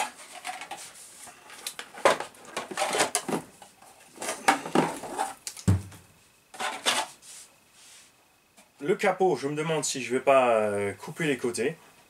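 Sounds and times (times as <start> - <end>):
dull thump: 5.6 - 6.0.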